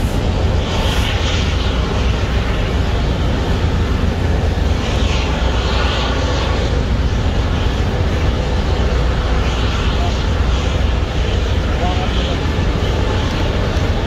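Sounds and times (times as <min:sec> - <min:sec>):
wind on microphone: 0:00.0 - 0:14.0.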